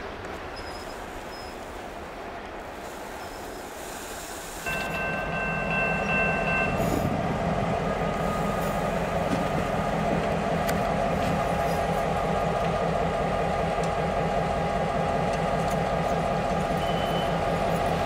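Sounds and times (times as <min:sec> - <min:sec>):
diesel locomotive running: 0:00.0 - 0:18.0
high steady tone: 0:04.7 - 0:07.2.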